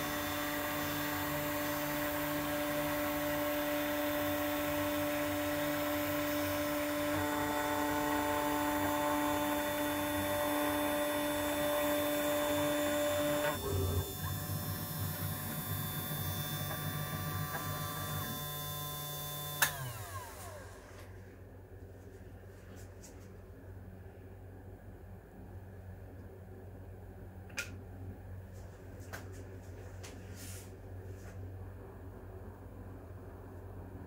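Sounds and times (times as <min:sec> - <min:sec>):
machine motor humming: 0:00.0 - 0:21.1.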